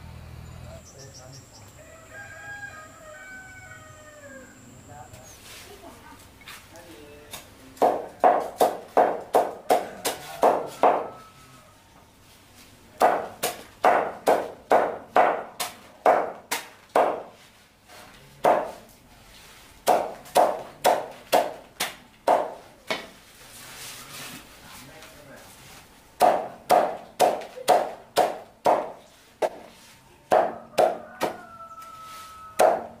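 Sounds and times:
cleaver chopping on wooden block: 7.8s - 11.1s, 13.0s - 17.3s, 18.4s - 18.8s, 26.2s - 29.7s, 30.3s - 31.4s, 32.6s - 33.0s.

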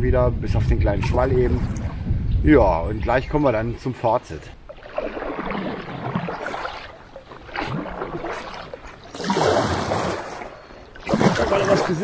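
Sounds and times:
paddle splashing in water: 4.6s - 12.0s.

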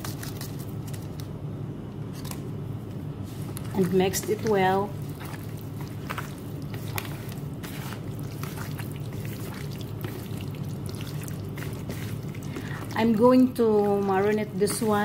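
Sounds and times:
steady low hum: 0.0s - 15.0s
raw chicken squelching: 3.7s - 15.0s.

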